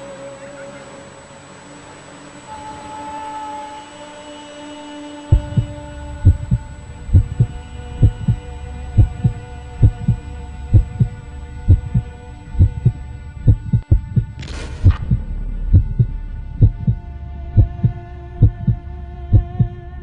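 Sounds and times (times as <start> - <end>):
steady low hum: 0.0 - 20.0
heartbeat thumps: 5.3 - 19.7.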